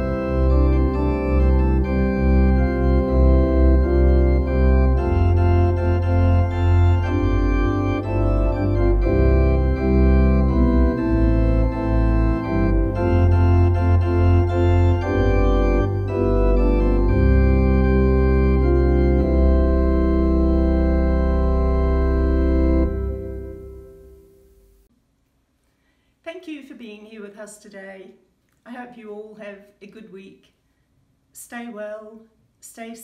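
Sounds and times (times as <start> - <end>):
organ playing a hymn: 0.0 - 24.8.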